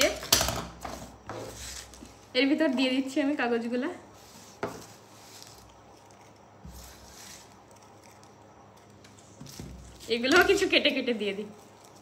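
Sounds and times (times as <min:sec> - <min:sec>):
faint paper rustling: 0:04.2 - 0:10.7.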